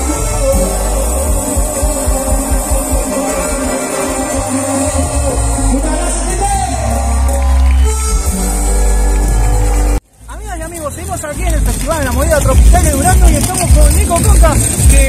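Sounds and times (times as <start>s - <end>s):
person singing: 0.0s - 7.6s
live cumbia band: 0.0s - 15.0s.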